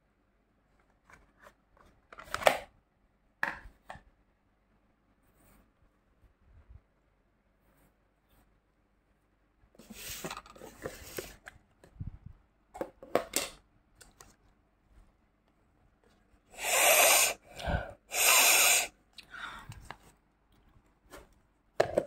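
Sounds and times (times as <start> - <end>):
plastic tubs and lids clicking: 12.8 - 14.3, 21.8 - 22.0
person sniffing deeply: 16.5 - 19.6.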